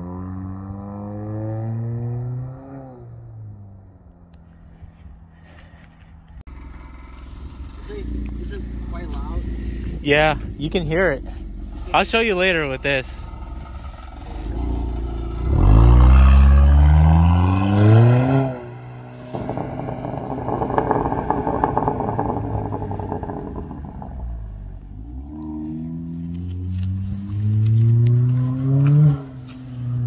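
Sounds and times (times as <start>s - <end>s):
car engine accelerating hard: 0.0s - 3.7s, 6.5s - 30.0s
exhaust crackling burble: 5.4s - 25.3s.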